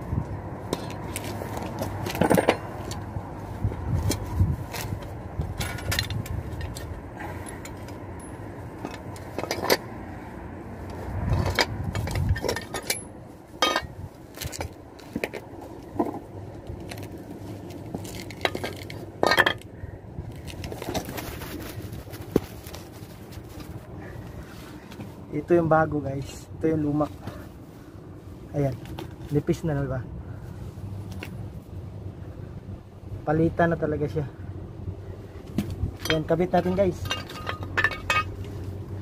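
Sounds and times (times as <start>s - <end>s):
low background rumble: 0.0s - 39.0s
metal parts clinking on concrete: 0.7s - 3.0s, 5.5s - 9.8s, 11.3s - 15.4s, 17.7s - 21.4s, 35.6s - 38.7s.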